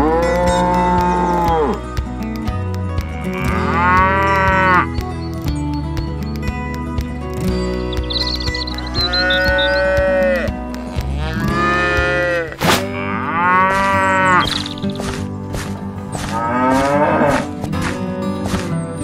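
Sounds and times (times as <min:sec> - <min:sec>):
cattle mooing: 0:00.0 - 0:01.8, 0:03.2 - 0:04.9, 0:08.8 - 0:14.9, 0:16.2 - 0:17.6
background music: 0:00.0 - 0:19.0.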